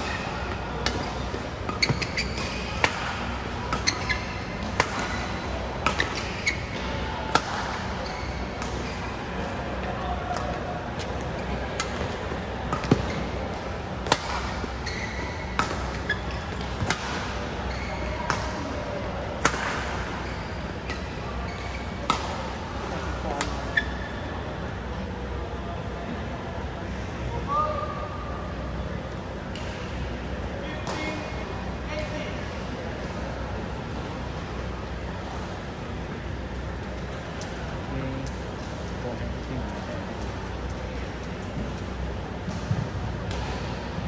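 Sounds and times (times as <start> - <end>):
rackets smacking shuttlecock: 0.0 - 6.6, 7.3 - 8.9, 14.0 - 17.4, 19.4 - 20.1
court shoes squeaking: 0.0 - 24.6, 28.8 - 33.1.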